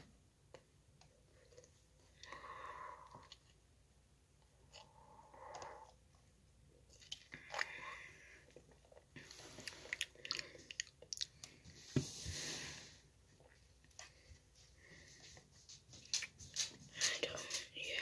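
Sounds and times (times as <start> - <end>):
person gulping and swallowing: 6.8 - 11.6.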